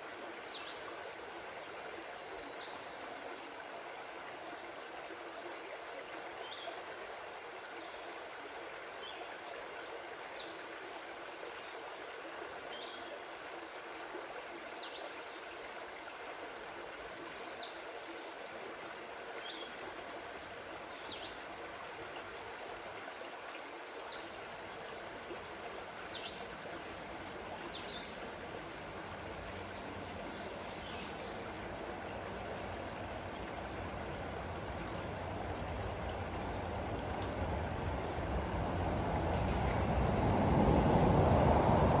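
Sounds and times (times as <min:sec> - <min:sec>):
flowing creek water: 0:00.0 - 0:42.0
low rumble: 0:37.3 - 0:42.0.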